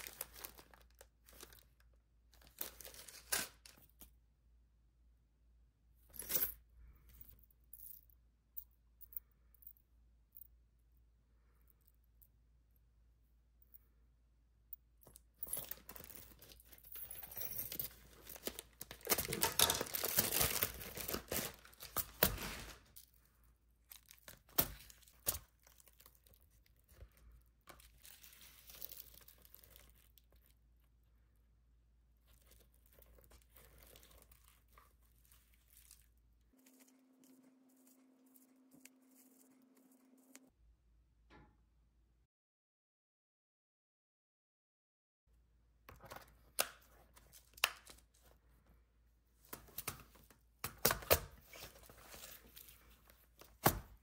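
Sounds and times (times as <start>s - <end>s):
plastic rustling: 0.0s - 1.8s, 17.7s - 23.2s
plastic wrapping crinkling and tearing: 0.0s - 1.8s, 2.4s - 3.8s, 18.1s - 23.0s, 27.7s - 30.5s, 32.3s - 36.9s.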